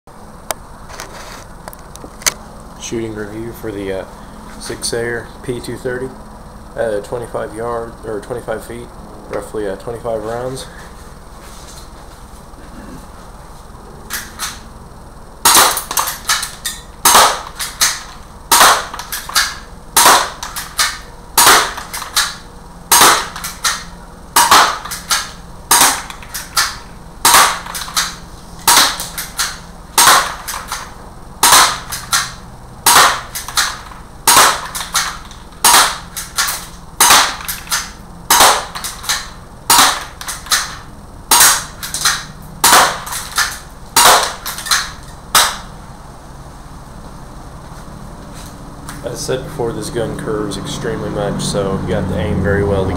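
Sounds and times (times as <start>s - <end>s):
airsoft pistol shots: 15.4s - 45.7s.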